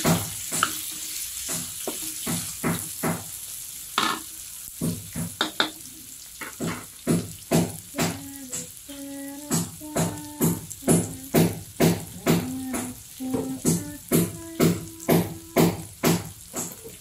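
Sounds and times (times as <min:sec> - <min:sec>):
wooden spatula scraping a wok: 0:00.0 - 0:03.4, 0:06.4 - 0:07.0
onion and garlic sizzling in oil: 0:00.0 - 0:17.0.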